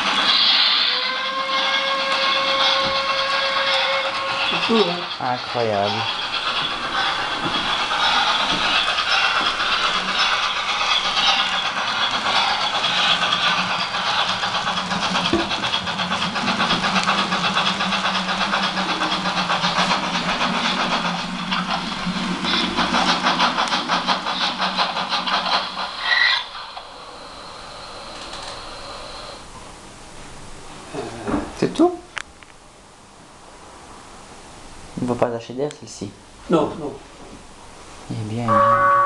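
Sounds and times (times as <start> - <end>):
model steam locomotive chuffing: 0.0 - 29.5.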